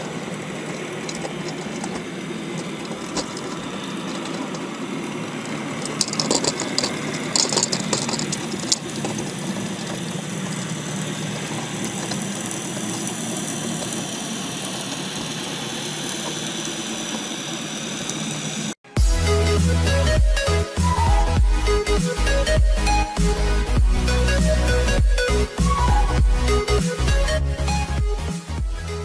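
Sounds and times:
clattering: 0.0 - 4.8, 5.8 - 10.7
engine hum: 0.0 - 29.0
electronic music with heavy beat: 19.0 - 29.0.

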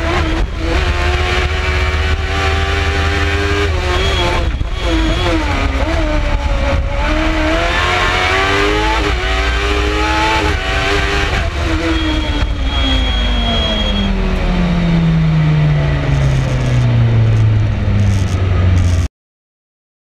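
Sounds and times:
wind noise: 0.0 - 14.5
road noise: 0.0 - 19.1.

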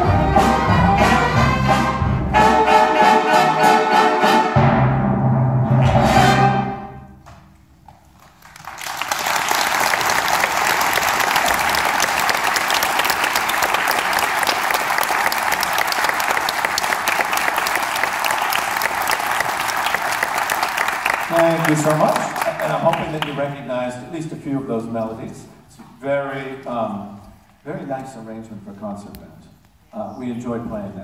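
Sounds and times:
audience applause: 8.2 - 23.4.

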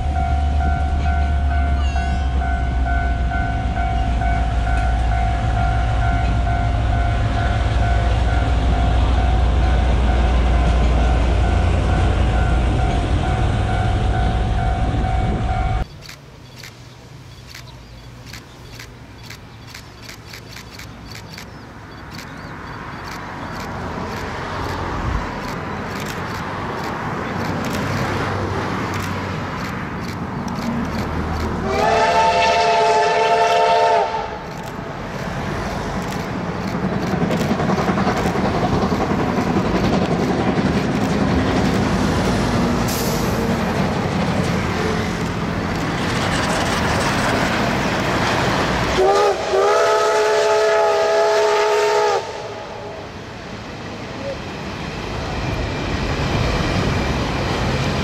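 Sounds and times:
approaching train rumble: 0.0 - 58.0
train whistle blasts: 31.6 - 34.4, 49.0 - 53.0.

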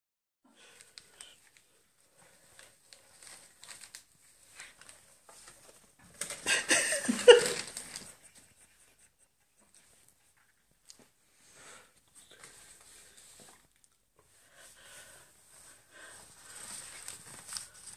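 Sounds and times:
paper bag rustling and crinkling: 0.8 - 8.2, 16.2 - 17.9.

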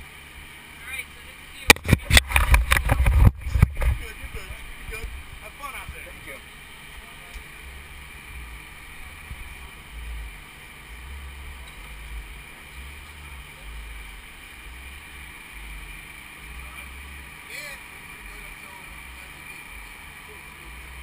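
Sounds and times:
wind buffeting microphone: 1.8 - 6.1.

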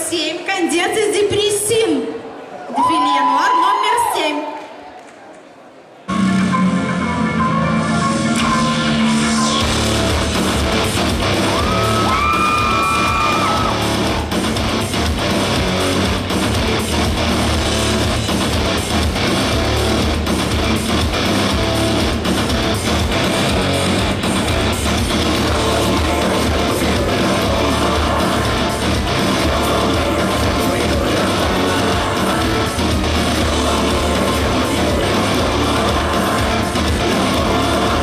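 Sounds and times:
high gliding tones: 6.1 - 12.0
rock music with strummed guitar: 9.6 - 38.0.

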